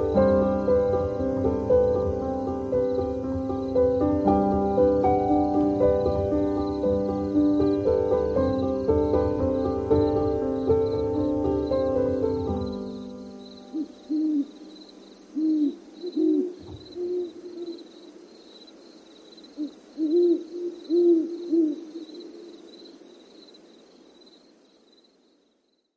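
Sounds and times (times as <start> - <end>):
owl hooting: 13.7 - 18.3, 19.5 - 23.1.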